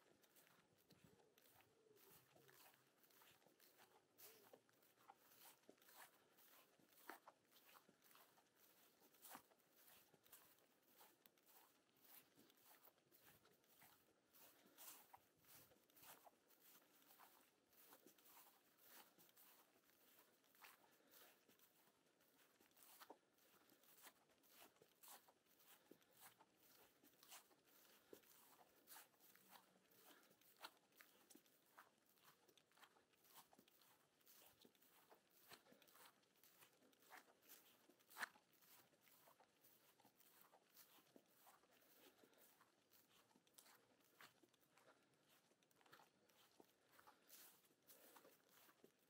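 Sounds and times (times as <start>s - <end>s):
faint footsteps outdoors: 0.0s - 49.0s.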